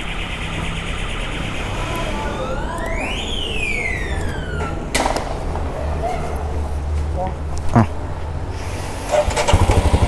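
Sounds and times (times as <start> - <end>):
siren-like wail: 0.0 - 6.4.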